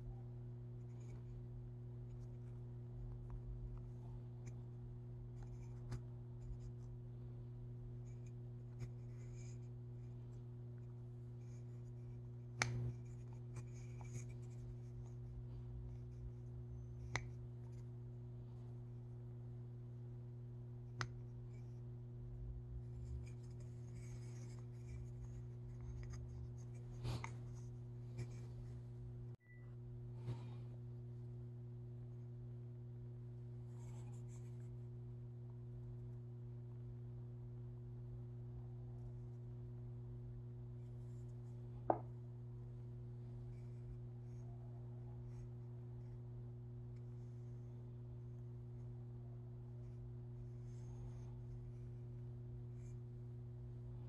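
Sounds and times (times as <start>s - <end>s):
steady low hum: 0.0s - 54.0s
faint scratching and clicks: 0.6s - 7.1s, 7.9s - 19.1s, 20.8s - 22.0s, 22.6s - 29.0s, 33.5s - 35.0s, 43.1s - 54.0s.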